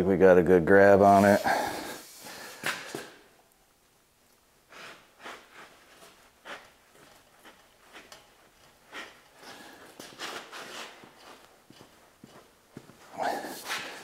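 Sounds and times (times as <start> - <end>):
man straining breaths: 1.4 - 3.2, 8.9 - 10.2, 13.1 - 14.0.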